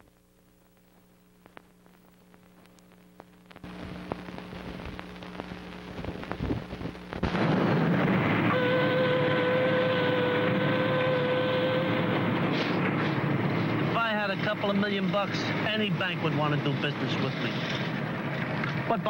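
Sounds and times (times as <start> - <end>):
faint hum: 0.0 - 19.0
clicks: 0.7 - 5.0
concrete mixer truck running: 7.4 - 16.0
construction site noise: 7.4 - 19.0.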